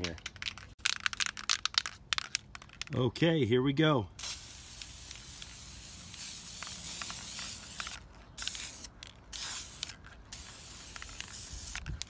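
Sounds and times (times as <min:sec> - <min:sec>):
spray paint can hissing: 0:04.2 - 0:12.0.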